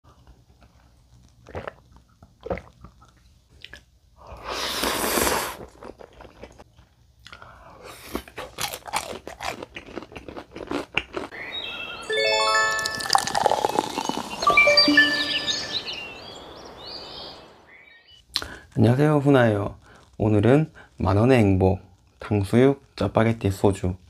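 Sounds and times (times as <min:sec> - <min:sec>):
rapid crunching of crispy food: 0:00.1 - 0:03.9, 0:04.6 - 0:11.3, 0:19.8 - 0:21.0
noodle slurp: 0:04.4 - 0:06.0, 0:13.1 - 0:14.4.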